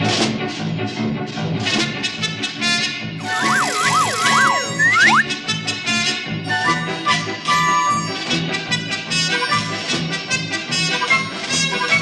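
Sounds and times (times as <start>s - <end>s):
band music: 3.2s - 5.2s
slide whistle swooping: 3.2s - 5.3s.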